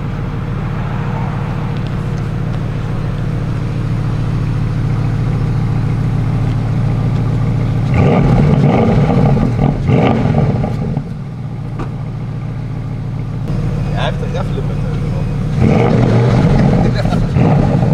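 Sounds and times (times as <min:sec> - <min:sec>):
car engine idling and revving: 0:00.0 - 0:17.9.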